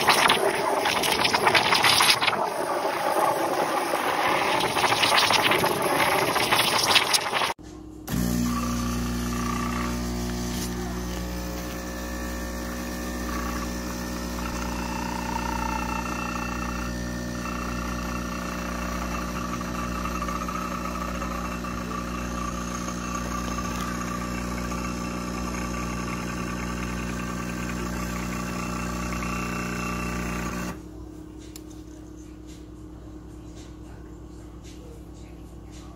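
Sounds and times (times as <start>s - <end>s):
espresso pouring into cup: 0.0s - 7.6s, 8.4s - 30.7s
espresso machine pump humming: 0.0s - 30.8s.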